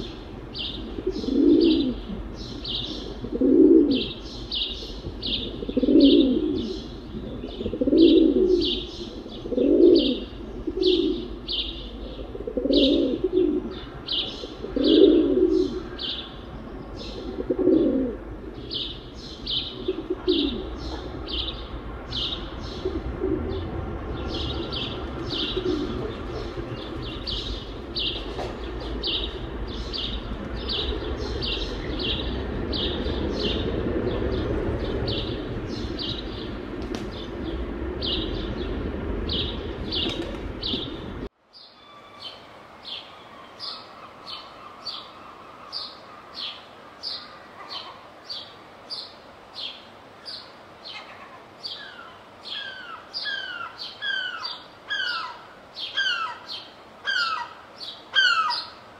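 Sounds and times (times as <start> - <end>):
pigeons cooing: 0.0 - 4.2, 5.2 - 16.2, 17.0 - 18.9, 19.5 - 21.6, 22.2 - 37.3
small birds chirping: 0.0 - 18.0, 18.6 - 58.8
low background rumble: 18.1 - 41.3.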